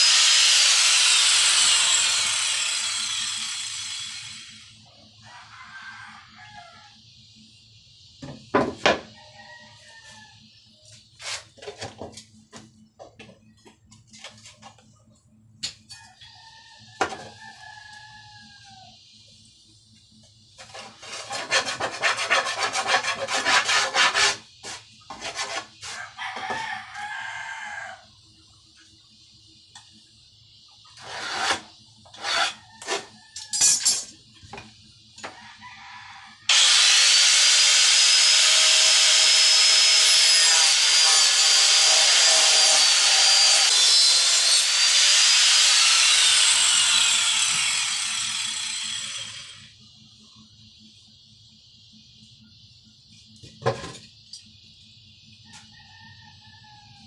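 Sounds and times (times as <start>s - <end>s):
rooster crowing: 5.1s - 7.1s, 9.1s - 10.7s, 16.0s - 19.0s, 25.9s - 28.2s, 32.2s - 33.7s, 35.2s - 36.5s, 55.4s - 57.0s
rasping scrape: 20.6s - 26.0s, 31.0s - 33.1s.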